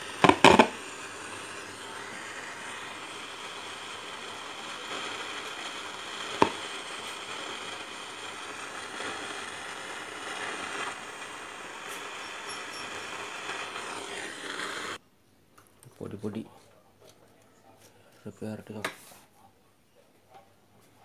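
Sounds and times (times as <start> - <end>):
radio static hiss and crackle: 0.0 - 15.0.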